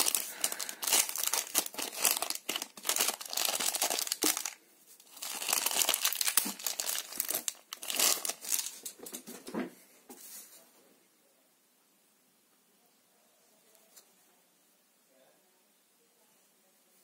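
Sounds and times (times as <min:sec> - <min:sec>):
plastic bag crinkling: 0:00.0 - 0:09.0.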